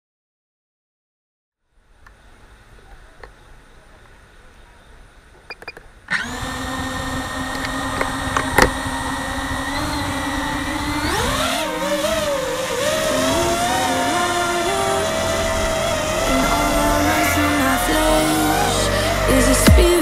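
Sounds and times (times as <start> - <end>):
drone propellers whining: 4.9 - 20.0.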